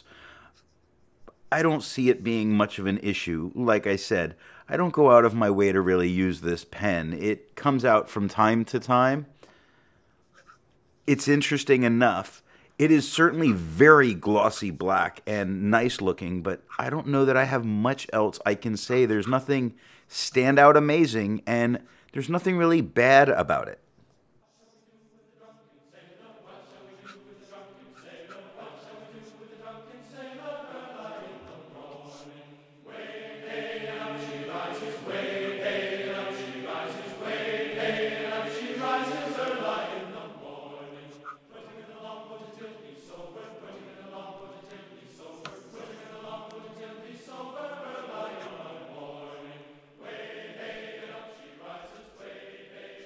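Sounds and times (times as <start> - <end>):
choir-like background music: 24.8 - 53.0.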